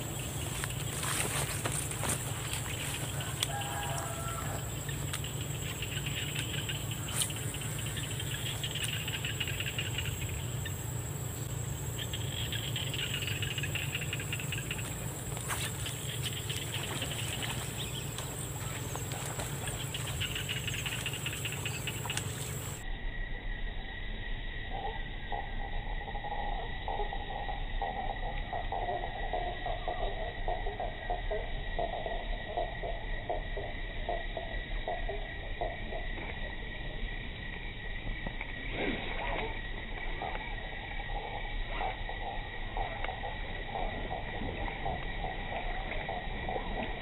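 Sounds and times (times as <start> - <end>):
distant bird call: 0.0 - 22.8
high insect whine: 0.0 - 47.0
insects chirring: 0.0 - 47.0
low hum: 0.0 - 47.0.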